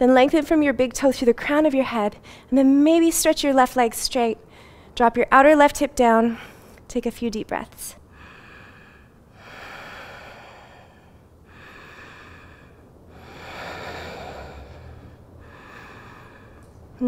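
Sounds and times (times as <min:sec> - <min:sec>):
woman breathing deeply: 0:04.5 - 0:05.0, 0:08.0 - 0:17.0.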